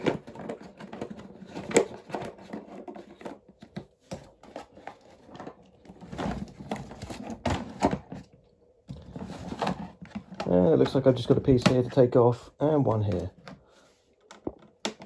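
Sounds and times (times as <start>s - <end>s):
packaging rustling: 0.0s - 8.3s.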